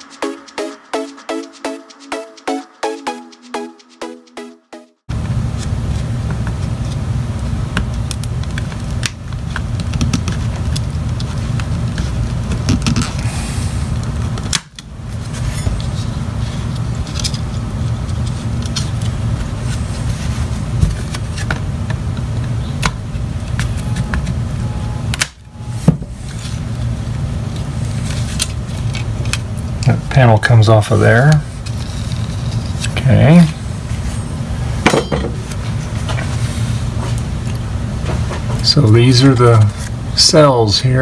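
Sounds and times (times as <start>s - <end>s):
low fan hum: 5.1s - 41.0s.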